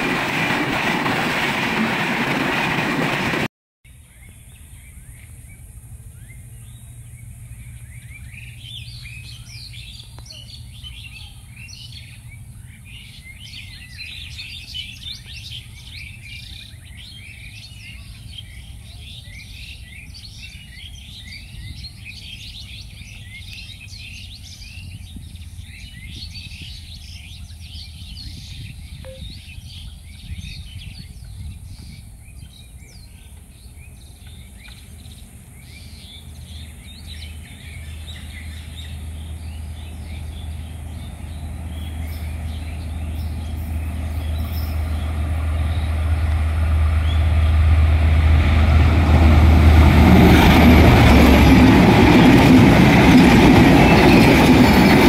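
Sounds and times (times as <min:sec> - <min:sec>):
small birds chirping: 0:04.0 - 0:46.4.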